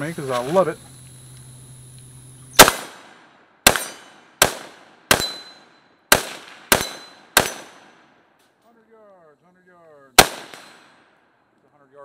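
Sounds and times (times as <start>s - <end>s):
rifle shots with echo: 2.6s - 8.3s, 10.2s - 11.3s.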